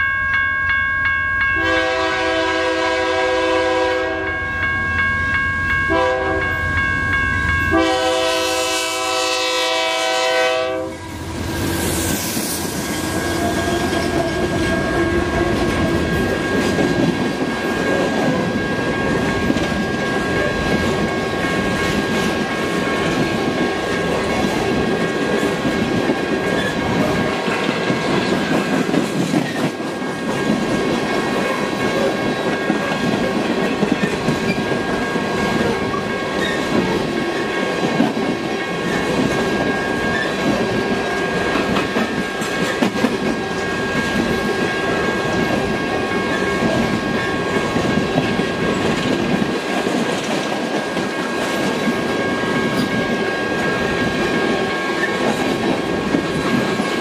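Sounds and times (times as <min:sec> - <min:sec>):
freight train rumble: 0:01.4 - 0:57.0
wheels clacking over rails: 0:13.1 - 0:53.2.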